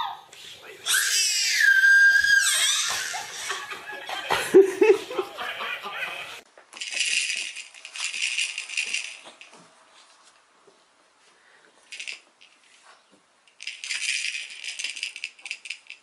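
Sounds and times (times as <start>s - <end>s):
people laughing: 2.4s - 6.4s
baby rattle shaken: 6.7s - 9.6s, 11.9s - 12.8s, 13.5s - 16.0s.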